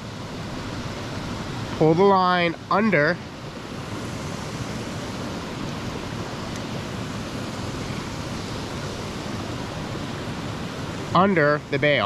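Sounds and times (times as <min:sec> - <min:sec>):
steady outdoor rushing noise: 0:00.0 - 0:12.0.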